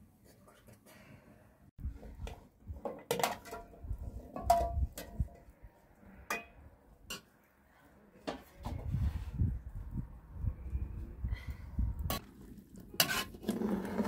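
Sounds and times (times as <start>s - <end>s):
dishes and pots clinking: 2.8s - 5.4s.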